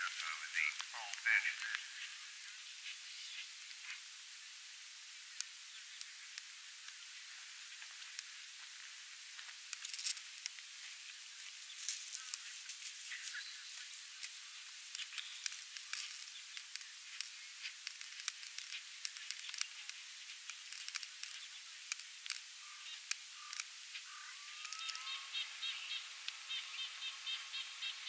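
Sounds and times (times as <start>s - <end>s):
steady hiss: 0.0s - 28.0s
sharp ticks: 14.2s - 25.2s.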